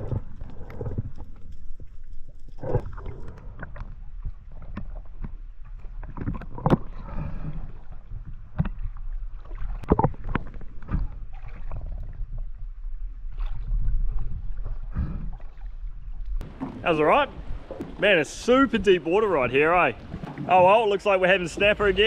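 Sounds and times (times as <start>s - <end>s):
water sloshing and splashing: 0.0s - 22.0s
steady low rumble: 15.9s - 22.0s.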